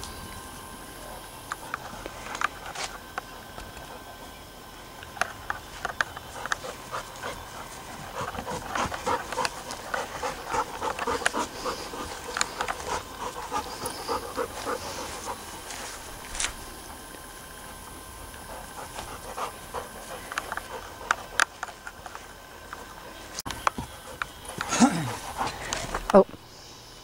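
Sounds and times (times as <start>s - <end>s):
dog panting: 5.1s - 17.0s, 18.3s - 26.2s.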